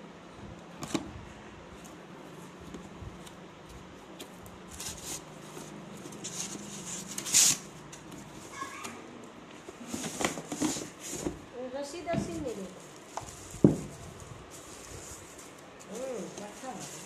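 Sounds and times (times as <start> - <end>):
cardboard rustling and scraping: 4.2 - 9.0, 9.6 - 17.0.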